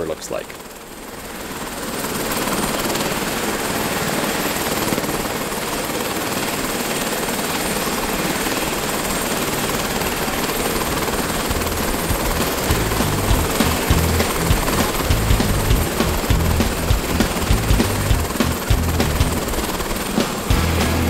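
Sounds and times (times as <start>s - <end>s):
helicopter turbine and rotor: 0.0s - 20.6s
low thumps: 12.0s - 19.6s.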